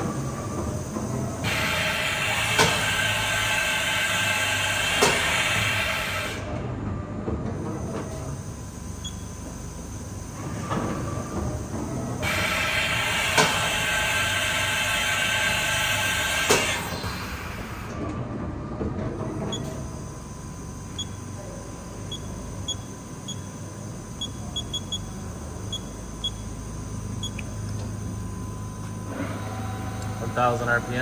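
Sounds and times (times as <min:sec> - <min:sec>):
machine low hum: 0:00.0 - 0:31.0
tool changer mechanical whine: 0:19.4 - 0:31.0.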